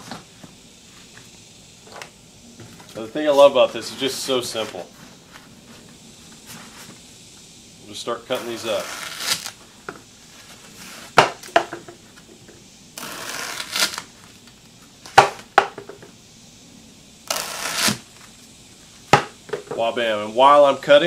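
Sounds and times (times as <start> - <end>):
blade hissing through foam: 2.4 - 15.1, 16.3 - 19.5
sharp knocks on wood: 11.2 - 12.0, 19.1 - 19.8.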